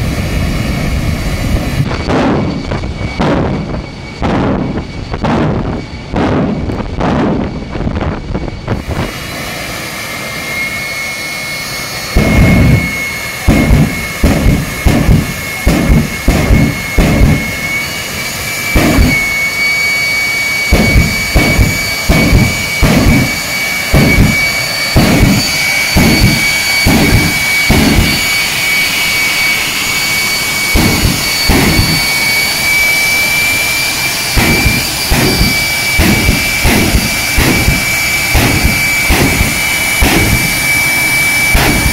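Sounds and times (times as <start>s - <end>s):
deep engine pulses: 0.0s - 41.9s
jet engine whining: 0.0s - 41.9s.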